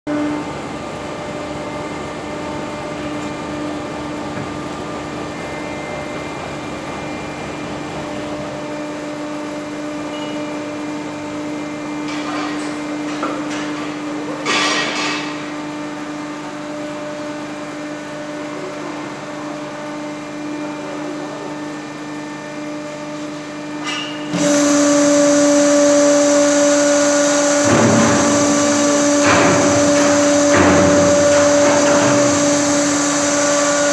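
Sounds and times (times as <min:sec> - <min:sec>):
baling press hydraulic hum: 0:24.3 - 0:33.9.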